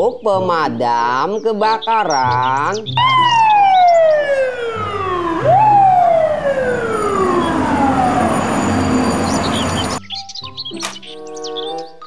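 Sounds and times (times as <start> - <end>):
fire truck siren wailing: 3.0 - 10.0.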